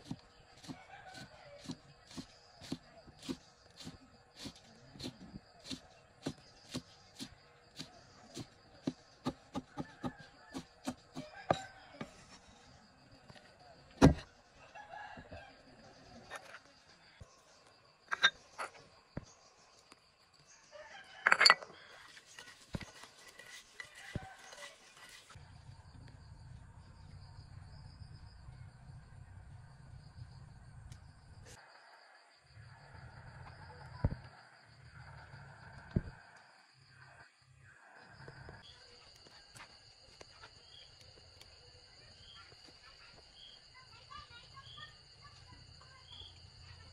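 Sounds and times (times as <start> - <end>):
crickets chirping: 0.0 - 46.9
cleaver chopping on wooden block: 8.4 - 11.6.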